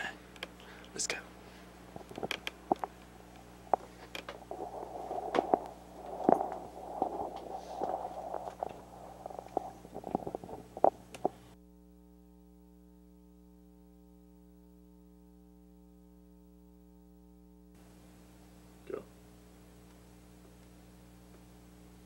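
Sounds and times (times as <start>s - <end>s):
low electrical hum: 0.0s - 22.0s
rustling: 1.5s - 11.6s.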